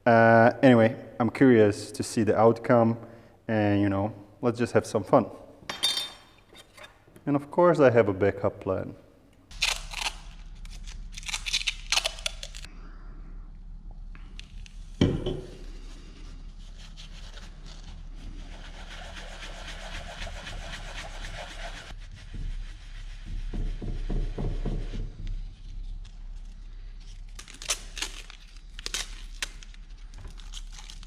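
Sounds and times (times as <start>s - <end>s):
metal scrubbing against sponge: 15.6s - 26.4s
knock: 23.4s - 25.1s.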